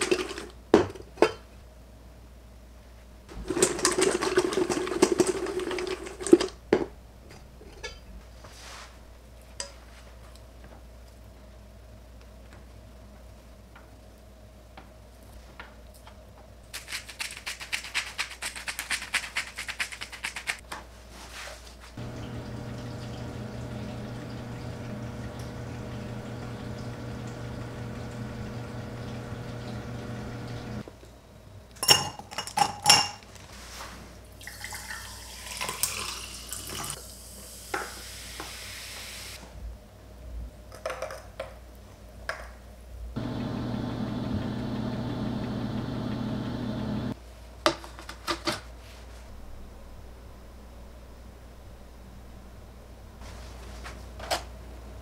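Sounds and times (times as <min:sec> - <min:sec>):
oven humming: 0:22.0 - 0:30.9, 0:43.2 - 0:47.2
hiss: 0:37.0 - 0:39.4.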